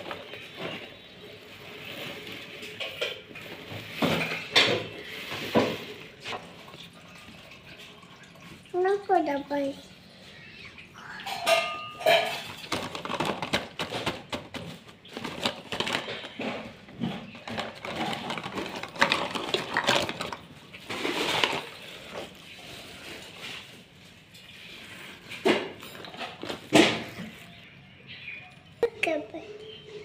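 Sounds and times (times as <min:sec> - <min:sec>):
plastic toy cookware clattering: 0:01.8 - 0:06.1, 0:11.3 - 0:22.4.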